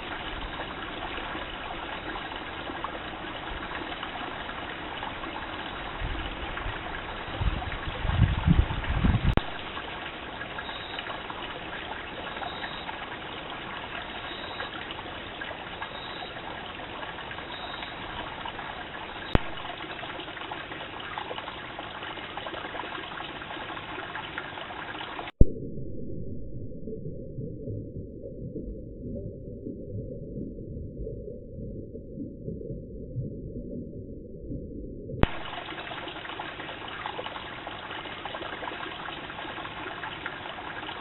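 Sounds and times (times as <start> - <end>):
stream trickling over rocks: 0.0 - 25.4, 35.2 - 41.0.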